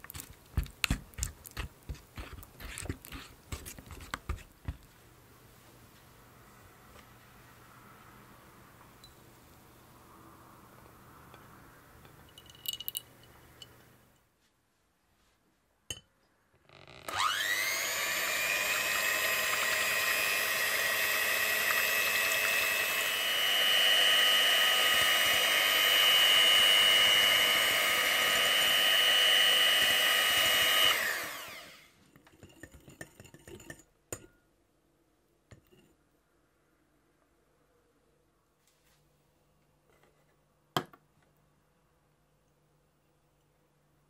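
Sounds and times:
electric hand mixer whirring: 17.1s - 31.9s.

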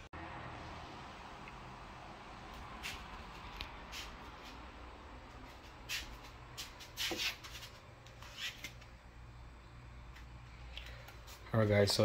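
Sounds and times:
faint room hum: 0.0s - 12.0s.

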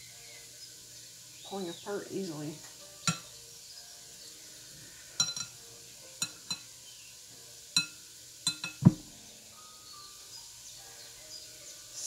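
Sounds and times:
clinks against glass bowl: 3.0s - 3.3s, 5.2s - 5.6s, 6.2s - 6.7s, 7.8s - 9.0s.

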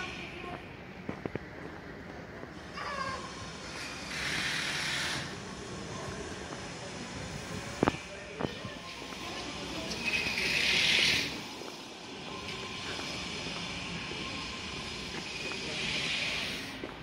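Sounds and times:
street noise: 0.0s - 17.0s
loud hissing bursts: 3.6s - 5.5s, 14.9s - 16.8s.

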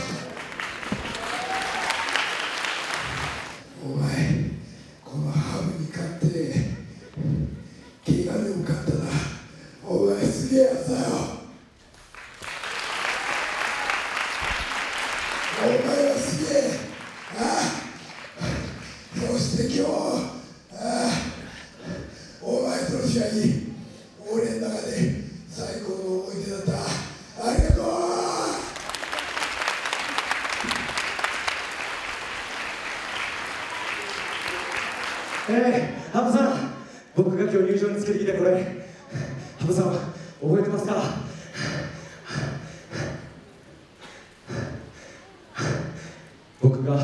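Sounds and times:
audience clapping: 0.0s - 3.6s, 11.9s - 19.4s, 27.6s - 36.0s.

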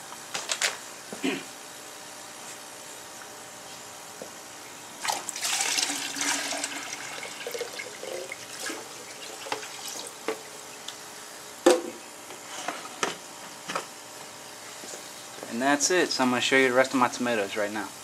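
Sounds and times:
liquid pouring into bucket: 5.0s - 10.5s.

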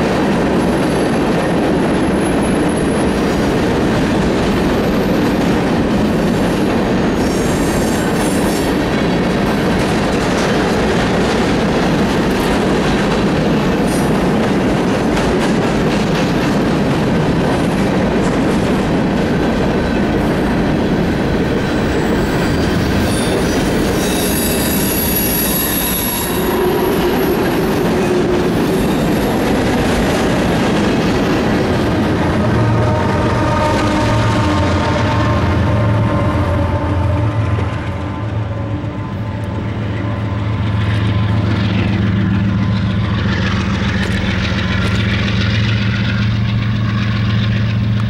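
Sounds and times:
train wheels rumbling on rail: 0.0s - 48.0s
high-pitched wheel squeal: 21.7s - 29.4s.

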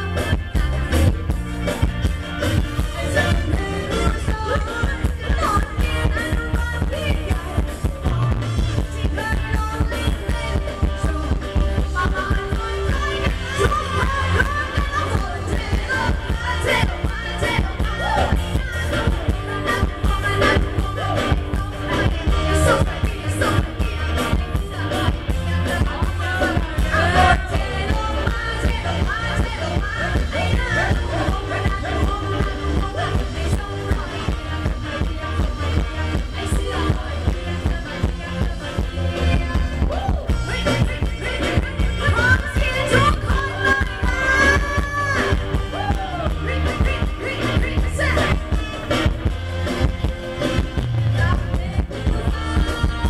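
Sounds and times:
live band music through loudspeakers: 0.0s - 53.0s
person singing: 2.8s - 49.2s, 50.4s - 53.0s.

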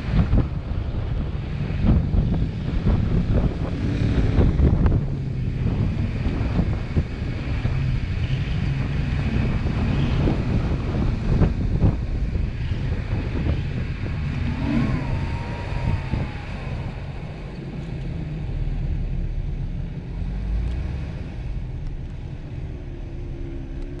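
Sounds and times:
off-road vehicle engine running: 0.0s - 24.0s.

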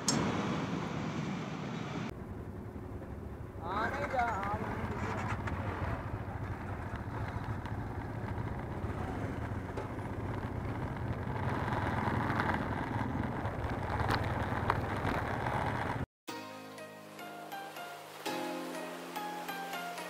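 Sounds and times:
wind and road noise: 0.0s - 16.1s
motorcycle engine running: 2.1s - 16.1s.

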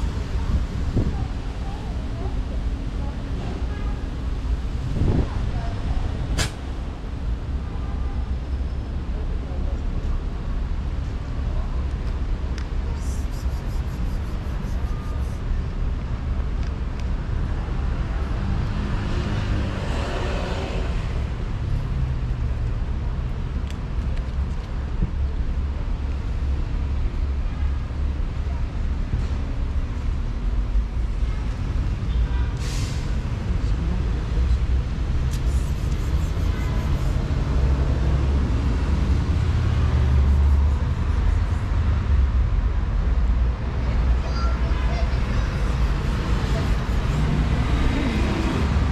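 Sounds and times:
street traffic rumble: 0.0s - 48.9s
car passing by: 17.6s - 22.0s, 45.7s - 48.9s.

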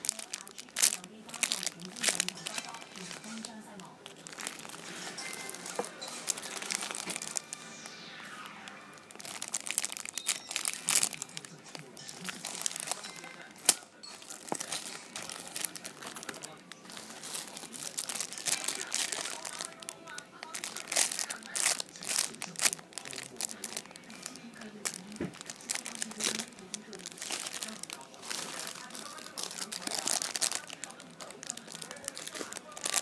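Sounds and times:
music: 0.0s - 33.0s
plastic bags crinkling: 0.0s - 33.0s.

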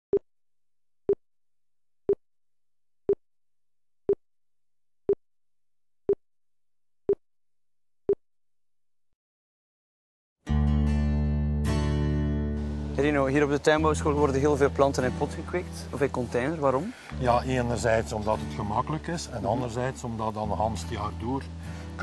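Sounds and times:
music: 10.4s - 22.0s.

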